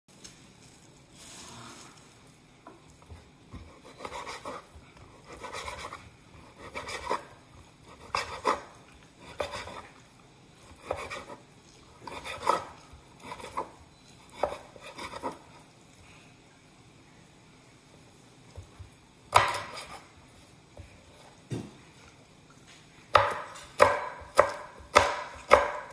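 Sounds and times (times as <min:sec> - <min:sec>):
knife slicing on wooden board: 0:03.6 - 0:09.9, 0:10.7 - 0:11.4, 0:12.0 - 0:13.7, 0:14.3 - 0:15.4, 0:19.3 - 0:20.1.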